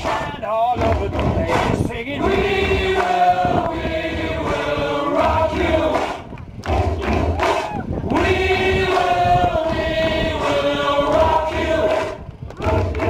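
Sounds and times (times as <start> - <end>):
crowd chanting in unison: 0.0 - 13.0.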